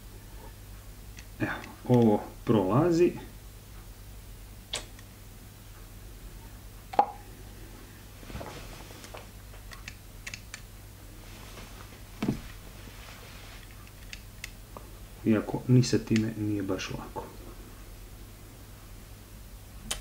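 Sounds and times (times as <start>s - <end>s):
dull knock: 12.2s - 12.5s.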